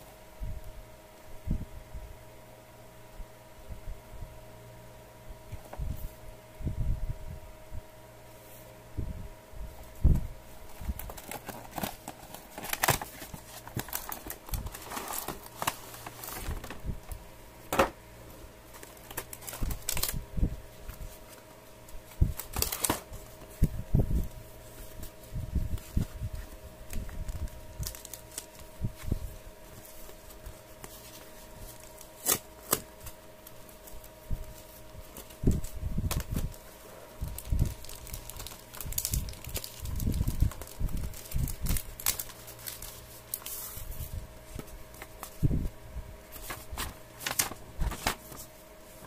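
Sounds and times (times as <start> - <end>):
faint steady hum: 0.0 - 49.0
plastic bag and paper crinkling: 9.7 - 17.9, 18.6 - 49.0.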